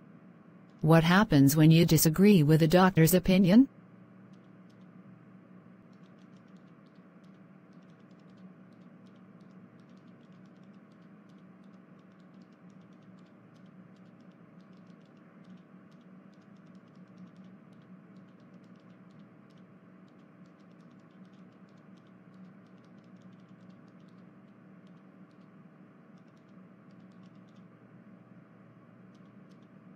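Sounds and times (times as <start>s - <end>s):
steady low hum: 0.0s - 29.9s
fast irregular clicking: 4.3s - 5.0s, 5.8s - 27.8s, 29.0s - 29.8s.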